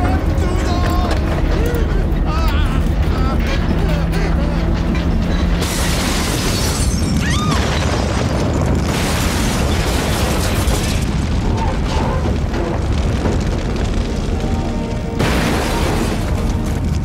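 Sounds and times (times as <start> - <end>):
burning wreck: 0.0 - 17.0
car explosion blast: 5.6 - 14.4, 15.2 - 17.0.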